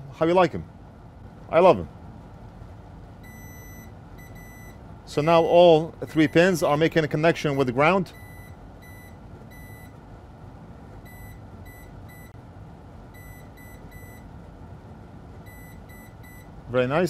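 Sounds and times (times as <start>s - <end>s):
low steady hum: 0.0s - 17.0s
multimeter continuity beeps: 3.2s - 4.8s, 6.0s - 6.7s, 7.5s - 10.0s, 11.0s - 12.4s, 13.1s - 14.3s, 15.4s - 16.6s.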